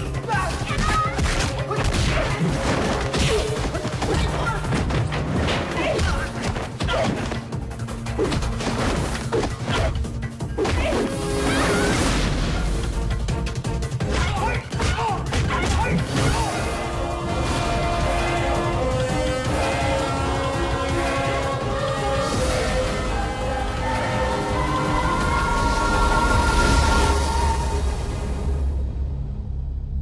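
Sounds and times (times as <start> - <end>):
film soundtrack music: 0.0 - 30.0.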